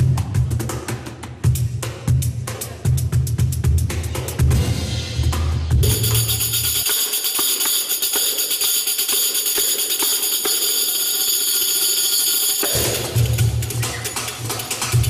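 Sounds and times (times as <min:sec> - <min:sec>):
tambourine jingles: 0:05.8 - 0:15.0.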